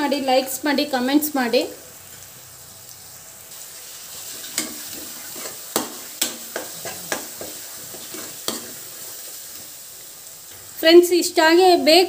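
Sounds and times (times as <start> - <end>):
vegetables sizzling in oil: 0.0 - 12.0
spatula scraping a pan: 4.3 - 9.2.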